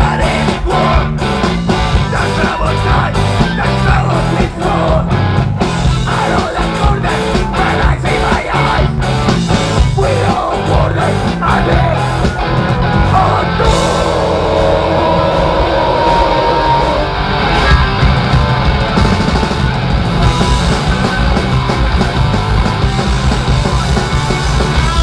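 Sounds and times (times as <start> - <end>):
punk rock band playing live: 0.0 - 25.0
person singing: 2.0 - 5.2, 6.0 - 8.9, 9.9 - 12.3, 13.0 - 17.0.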